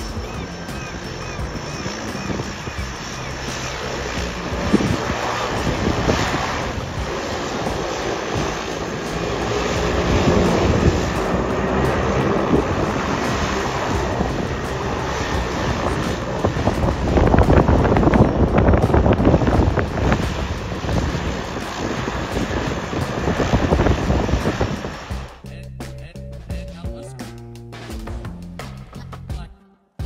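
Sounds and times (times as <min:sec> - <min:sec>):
wind buffeting microphone: 0:00.0 - 0:25.4
turboprop plane engine running: 0:00.0 - 0:27.3.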